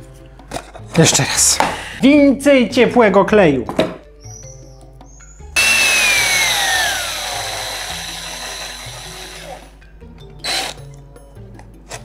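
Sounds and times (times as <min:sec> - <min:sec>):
drill spinning fan whine: 0:05.6 - 0:09.8, 0:10.4 - 0:10.8.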